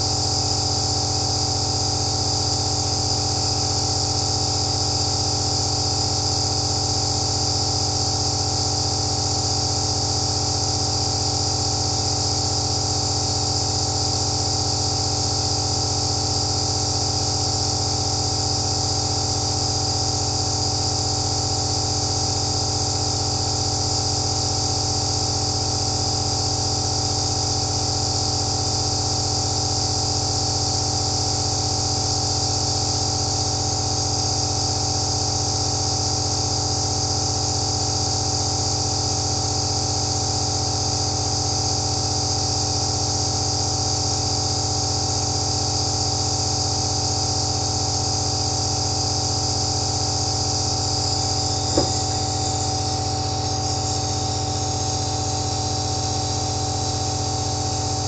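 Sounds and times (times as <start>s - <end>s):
nebulizer humming and hissing: 0.0s - 58.0s
short click: 51.6s - 52.3s.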